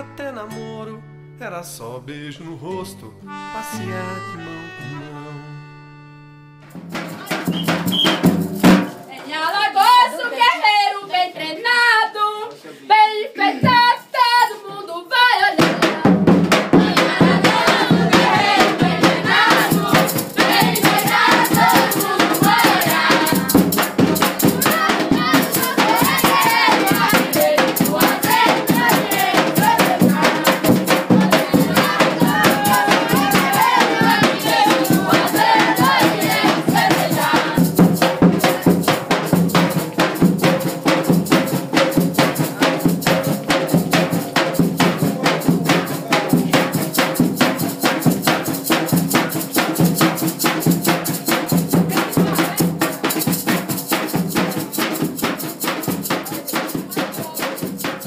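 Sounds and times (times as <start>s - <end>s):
drum beat: 6.6s - 10.1s, 15.5s - 58.0s
shaken rattles: 7.0s - 9.3s, 17.1s - 58.0s
group singing: 7.0s - 48.1s, 50.9s - 53.2s.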